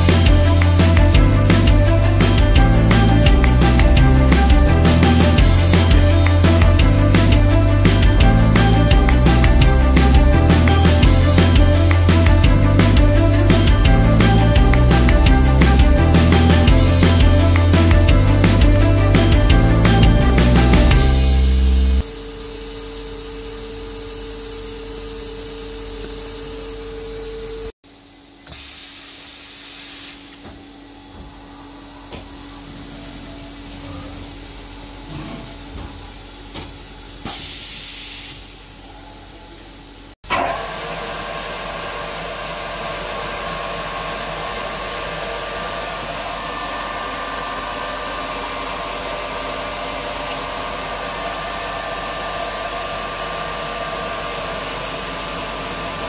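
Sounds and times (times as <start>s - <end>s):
grinder machine humming: 0.0s - 22.1s, 40.3s - 56.0s.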